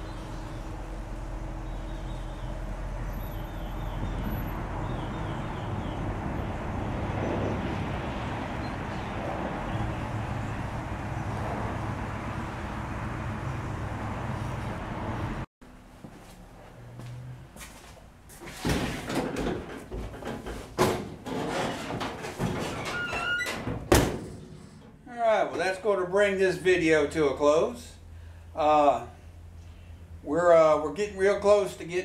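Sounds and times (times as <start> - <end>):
pickup truck engine driving past: 0.0 - 15.4.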